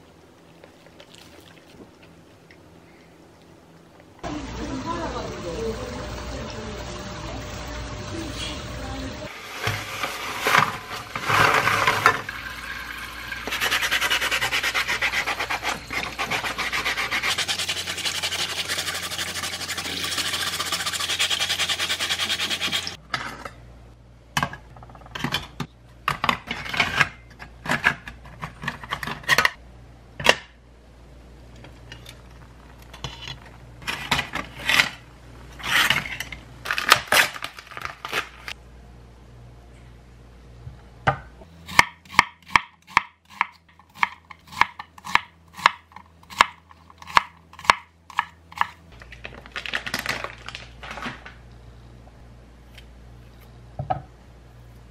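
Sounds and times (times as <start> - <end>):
plastic film crinkling: 36.6 - 38.6, 49.0 - 51.4.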